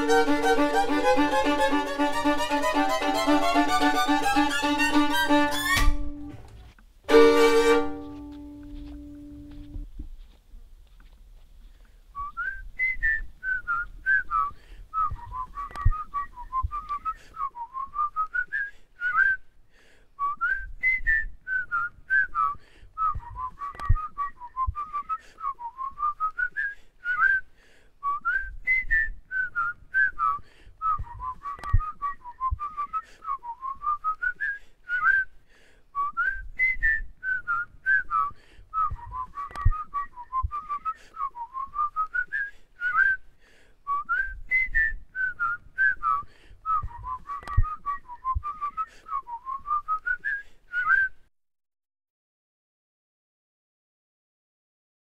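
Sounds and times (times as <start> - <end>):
faint low thumps and clicks: 8.2 - 17.1, 23.0 - 25.0, 30.8 - 32.8, 38.7 - 40.8, 44.0 - 48.7
person whistling a melody: 12.2 - 19.4, 20.2 - 35.4, 36.0 - 43.2, 43.9 - 51.3.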